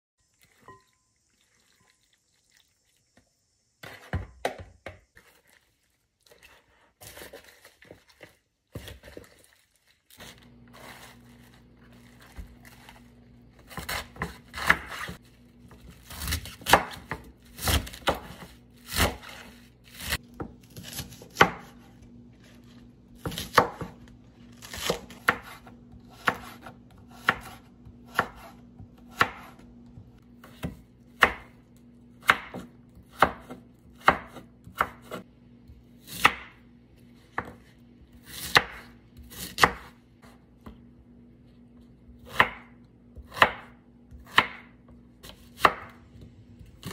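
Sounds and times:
knife chopping on wooden board: 0:13.6 - 0:15.2, 0:15.8 - 0:21.9, 0:23.2 - 0:24.0, 0:24.6 - 0:31.6, 0:32.2 - 0:35.2, 0:36.0 - 0:36.6, 0:37.3 - 0:40.8, 0:42.1 - 0:46.0.

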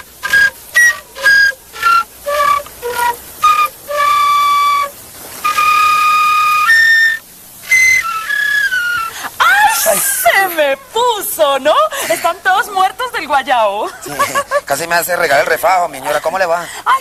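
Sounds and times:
person whistling a tune: 0:00.2 - 0:09.2.

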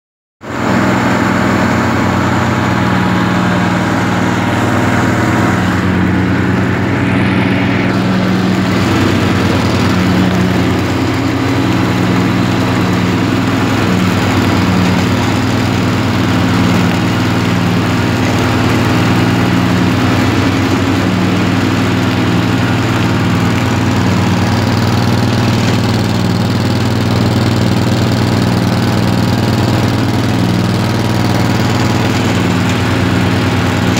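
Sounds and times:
ride-on mower engine running: 0:00.4 - 0:33.9.

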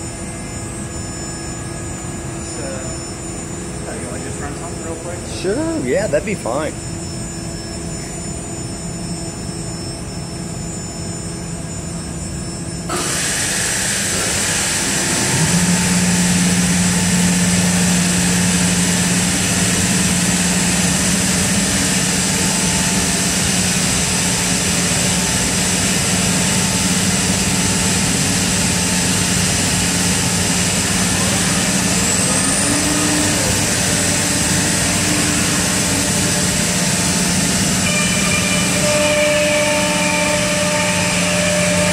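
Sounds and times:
machine hum with steady tones: 0:00.0 - 0:41.9
low hum rising in pitch: 0:14.1 - 0:41.9.

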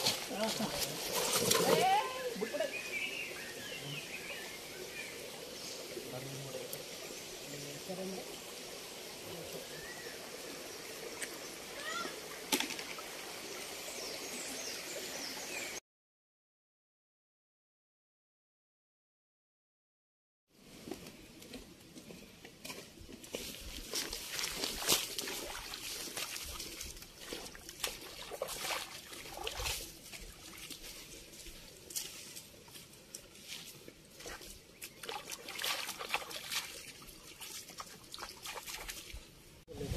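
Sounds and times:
stream running over rocks: 0:00.0 - 0:15.8, 0:22.8 - 0:39.9.

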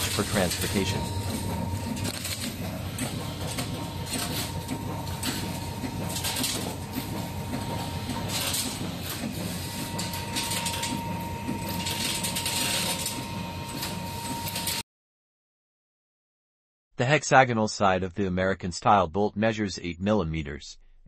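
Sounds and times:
machine whine: 0:00.0 - 0:14.8.

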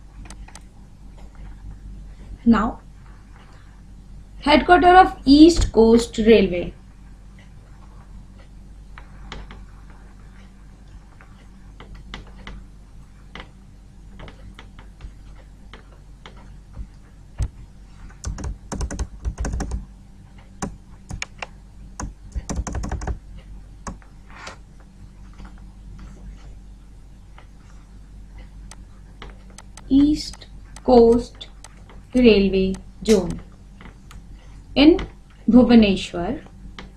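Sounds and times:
low electrical hum: 0:00.0 - 0:36.9
computer keyboard clicking: 0:18.2 - 0:19.8, 0:20.6 - 0:23.2, 0:28.7 - 0:33.4.

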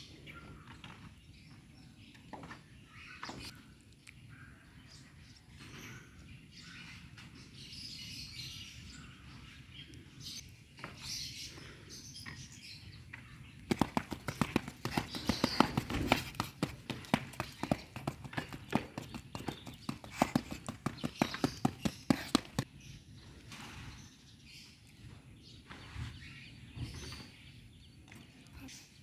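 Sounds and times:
fast sharp taps: 0:13.7 - 0:22.6.

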